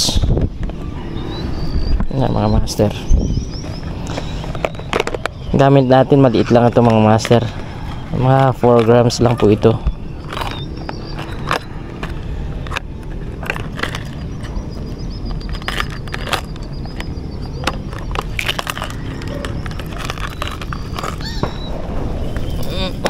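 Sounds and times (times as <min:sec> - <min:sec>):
handling clicks and scrapes: 0:02.8 - 0:23.0
low rumble: 0:09.8 - 0:23.0.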